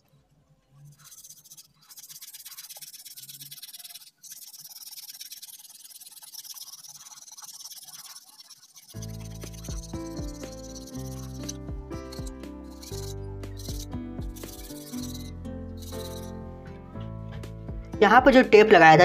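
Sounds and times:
steel wool scrubbing circuit board: 0:00.7 - 0:16.3
background music with low beat: 0:09.0 - 0:19.0.

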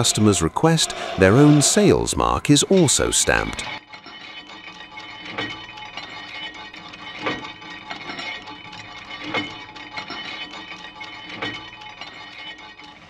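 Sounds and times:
metal clicks and clinks: 0:02.8 - 0:13.0
metal-on-metal stamping strikes: 0:03.7 - 0:12.8.

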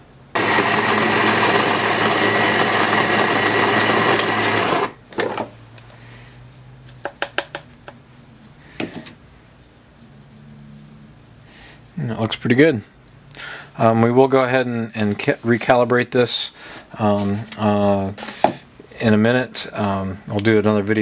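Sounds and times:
burr coffee grinder grinding: 0:00.4 - 0:05.0.

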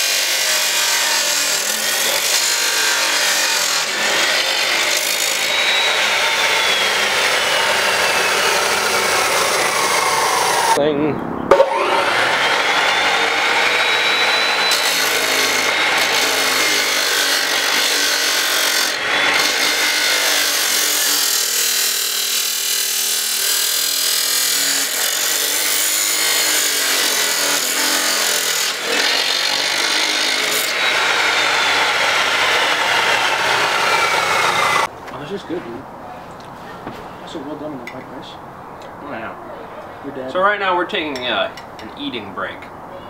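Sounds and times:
chop saw whining: 0:00.0 - 0:10.8, 0:11.5 - 0:34.9
saw grinding through metal: 0:00.0 - 0:10.8, 0:11.5 - 0:34.9.

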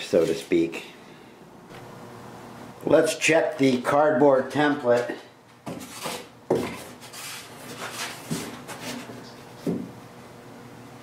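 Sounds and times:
cardboard scraping on foam: 0:05.8 - 0:09.1.

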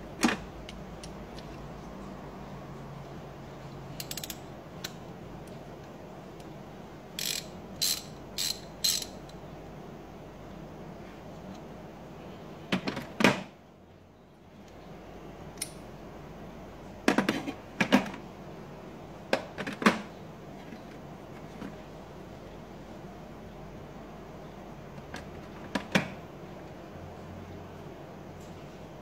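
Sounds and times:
ratchet clicking: 0:03.9 - 0:05.0, 0:07.2 - 0:09.3
metal sockets clinking: 0:07.2 - 0:09.4.

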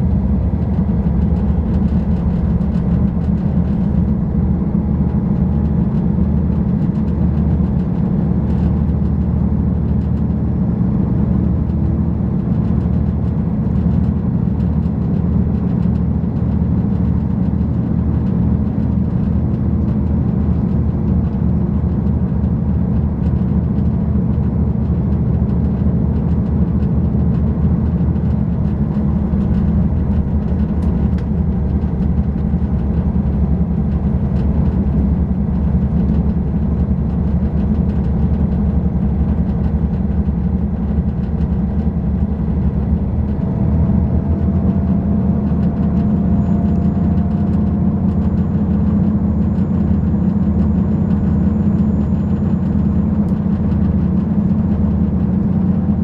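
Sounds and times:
train engine rumble: 0:00.0 - 0:56.0
train wheels on rails: 0:25.2 - 0:55.7.

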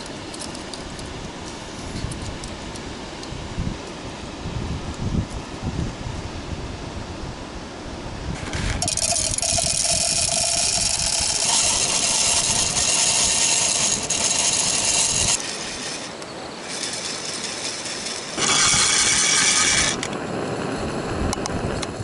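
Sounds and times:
coffee beans rattling in metal roaster: 0:08.4 - 0:20.0.

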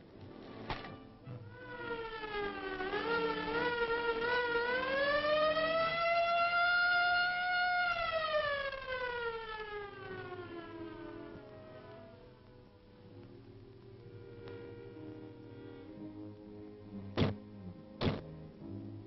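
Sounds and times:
siren wailing: 0:01.2 - 0:16.2.

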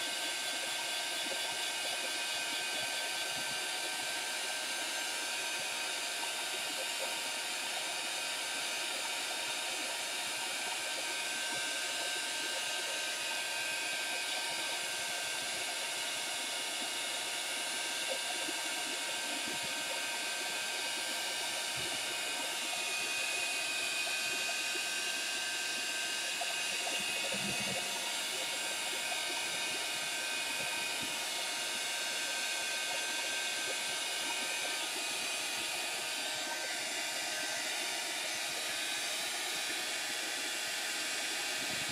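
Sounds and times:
heat tool blowing hot air: 0:00.0 - 0:41.9.

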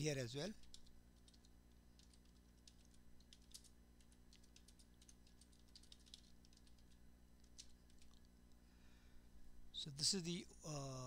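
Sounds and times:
faint keyboard typing: 0:00.0 - 0:08.6.

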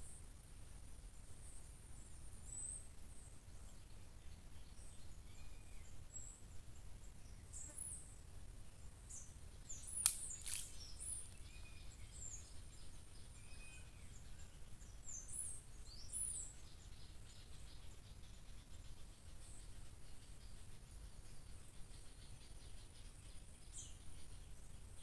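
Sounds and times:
sharp click: 0:09.9 - 0:11.4.

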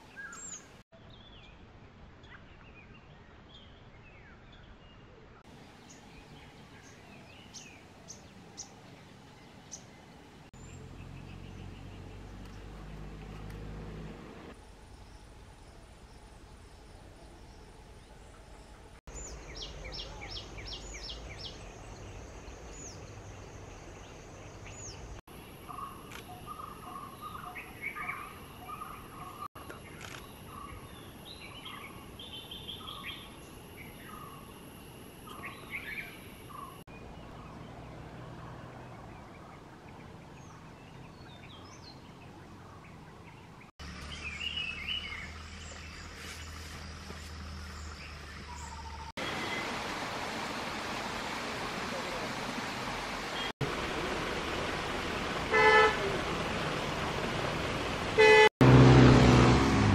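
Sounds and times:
bird chirps and calls: 0:19.1 - 0:34.4.

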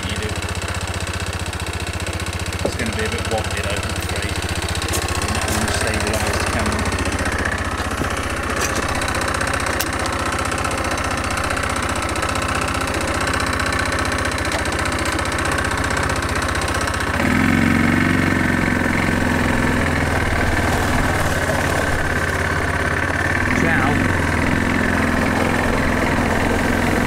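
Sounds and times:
quad bike engine running: 0:00.0 - 0:27.0.

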